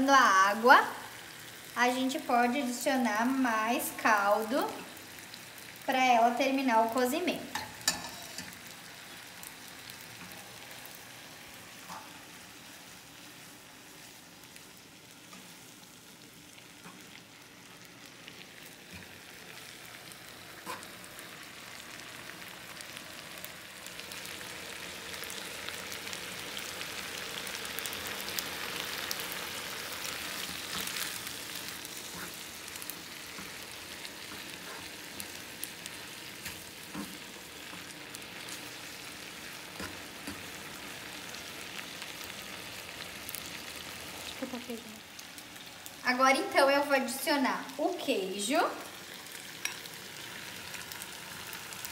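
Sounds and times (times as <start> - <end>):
pasta water sizzling in a frying pan: 0.0 - 51.9
metal tongs clicking on pan: 7.5 - 8.6.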